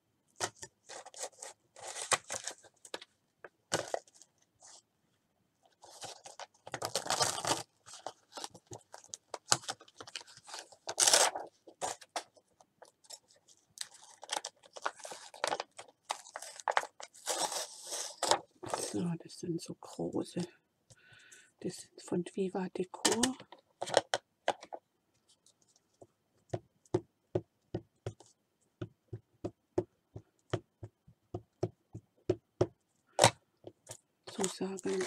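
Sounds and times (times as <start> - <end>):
packaging rustling and crinkling: 0.5 - 3.1, 3.7 - 4.4, 5.7 - 19.0, 34.3 - 35.0.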